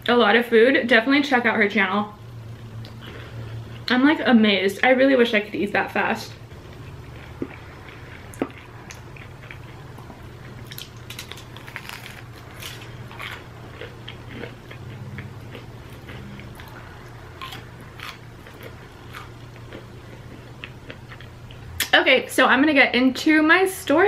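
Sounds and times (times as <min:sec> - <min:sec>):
steady low hum: 0:00.0 - 0:24.0
crisp snack crunching: 0:10.6 - 0:16.8, 0:17.4 - 0:21.3.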